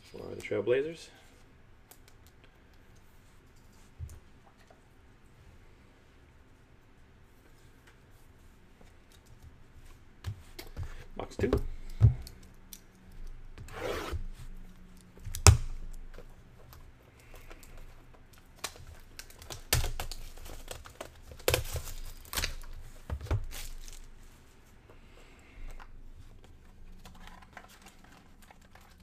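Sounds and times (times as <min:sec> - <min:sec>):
wrapping tearing and crinkling: 0:17.2 - 0:24.4, 0:26.0 - 0:29.0.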